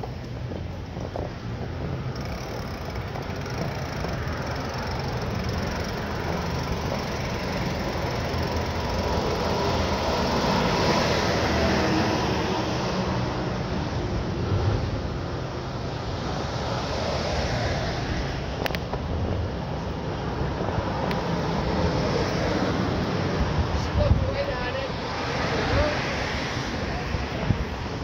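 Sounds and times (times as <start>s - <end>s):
bicycle rolling noise: 0.0s - 13.4s
rushing wind: 0.0s - 28.0s.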